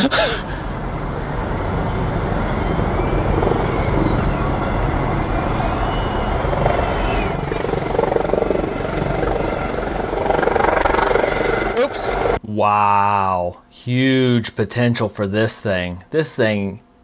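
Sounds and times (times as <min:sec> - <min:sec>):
drone motors whining: 0:00.0 - 0:12.4
steady rushing noise: 0:00.0 - 0:12.4.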